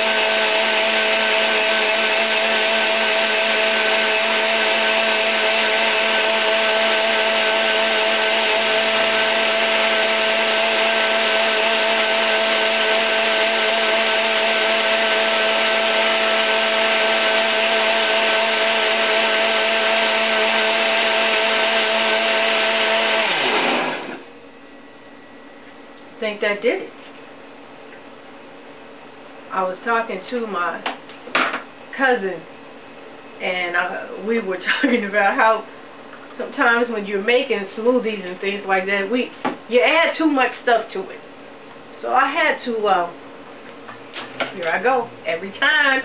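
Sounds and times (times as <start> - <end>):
blender motor spinning down: 0.0 - 24.3
blender running: 0.0 - 24.4.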